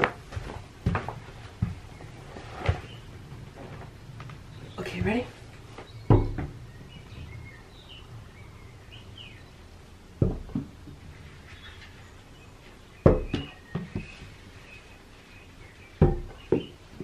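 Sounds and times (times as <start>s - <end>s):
ball knocking on door and floor: 6.0s - 6.6s, 10.2s - 11.0s, 13.0s - 14.1s, 16.0s - 16.8s.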